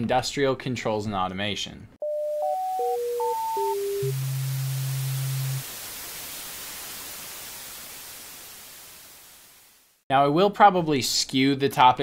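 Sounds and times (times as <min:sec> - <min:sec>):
low steady tone: 0:02.0 - 0:05.6
static hiss: 0:03.5 - 0:10.0.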